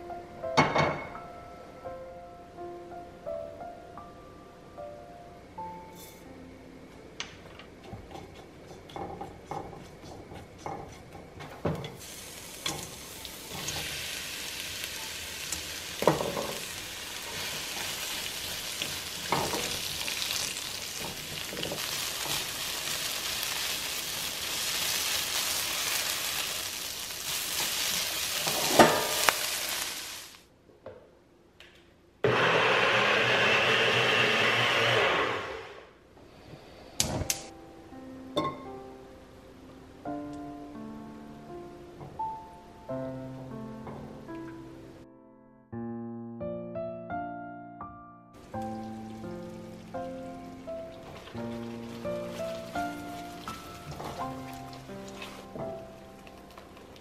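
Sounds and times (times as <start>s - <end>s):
seeds crackling in hot oil: 8.9s - 30.5s, 48.4s - 57.0s
onions sizzling in pan: 9.2s - 30.5s, 48.4s - 57.0s.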